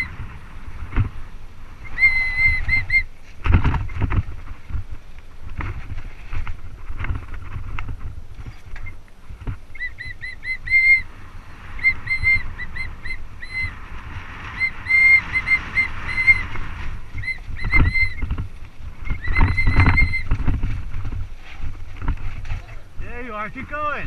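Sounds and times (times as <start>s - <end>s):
bike brakes squealing chirps: 1.8s - 3.1s, 9.7s - 11.1s, 11.8s - 13.8s, 14.5s - 16.6s, 17.2s - 18.3s, 19.1s - 20.3s.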